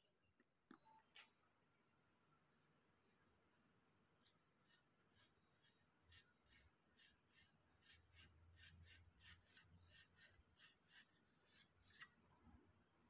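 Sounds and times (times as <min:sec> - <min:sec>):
saw blade scratching in handle: 0:04.7 - 0:12.1.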